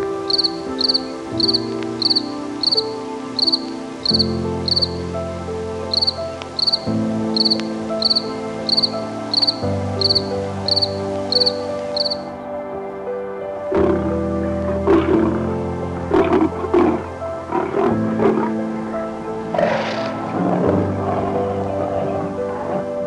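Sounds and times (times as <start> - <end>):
insect chirping: 0.0 - 12.4
soft sustained music chords: 0.0 - 23.0.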